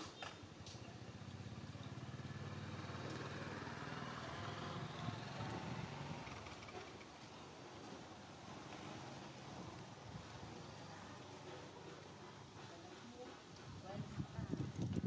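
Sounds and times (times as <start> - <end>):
small motorcycle engine running: 1.0 - 7.1.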